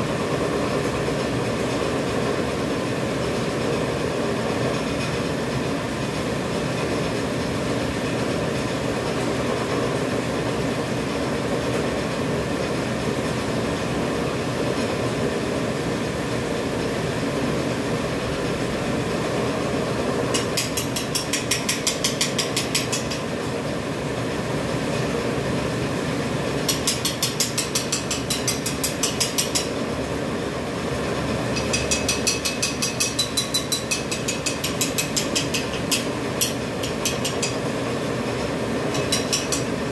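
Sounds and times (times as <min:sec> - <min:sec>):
rapid regular machine clicking: 0:20.3 - 0:23.4, 0:26.6 - 0:29.8, 0:31.5 - 0:37.8, 0:38.4 - 0:39.9.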